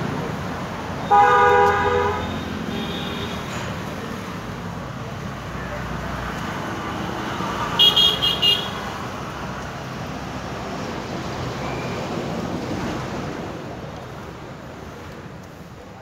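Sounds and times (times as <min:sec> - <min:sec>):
road traffic noise: 0:00.0 - 0:16.0
high-pitched vehicle horn toots: 0:01.1 - 0:03.4.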